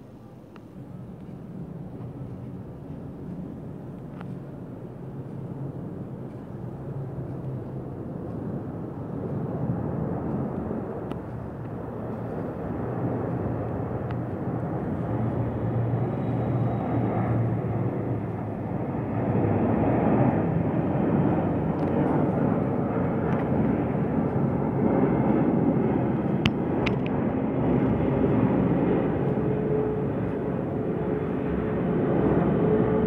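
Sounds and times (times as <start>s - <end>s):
jet airliner roar overhead: 0.0s - 33.0s.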